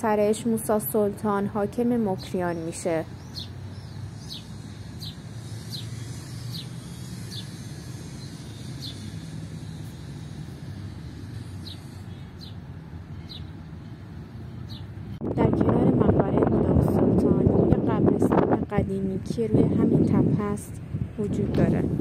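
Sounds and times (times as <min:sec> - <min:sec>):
distant road traffic: 0:00.0 - 0:22.0
bird chirping: 0:02.0 - 0:10.4, 0:11.3 - 0:15.2.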